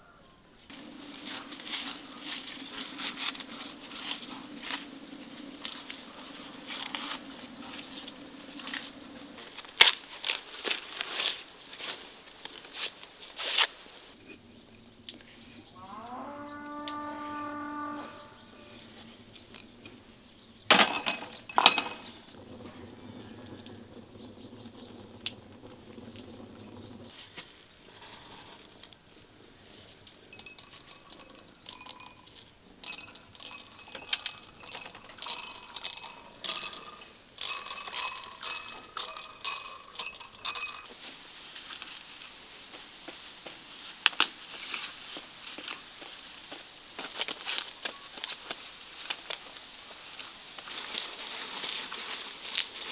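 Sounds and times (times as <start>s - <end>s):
glass jars clinking: 20.8s - 22.2s, 30.3s - 40.9s
spices crackling in hand: 28.4s - 40.9s.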